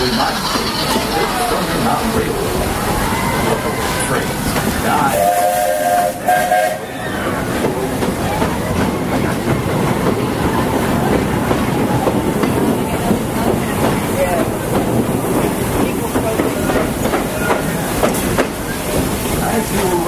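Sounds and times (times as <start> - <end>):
train rumble and clatter: 0.0 - 20.0
steam locomotive whistle: 5.1 - 7.3.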